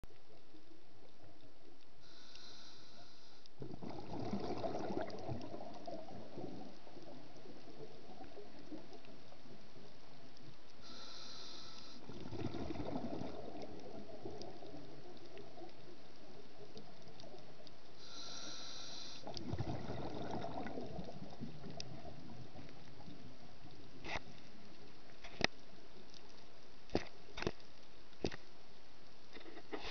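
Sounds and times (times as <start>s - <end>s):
regulator inhalation hiss: 2.0s - 3.6s, 10.8s - 12.0s, 18.0s - 19.3s
exhaled bubbles gurgling: 3.6s - 9.6s, 12.0s - 18.3s, 19.2s - 23.6s.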